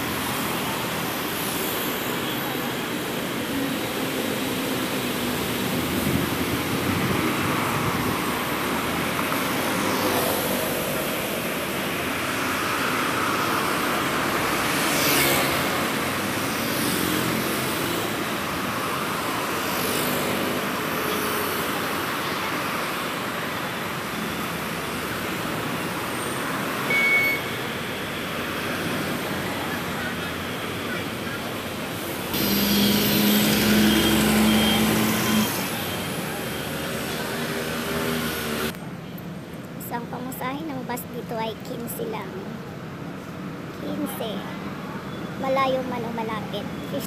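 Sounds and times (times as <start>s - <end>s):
bus pulling in: 0.0s - 39.8s
cars passing: 0.0s - 47.0s
road traffic: 0.0s - 47.0s
brief high tone: 26.9s - 27.6s.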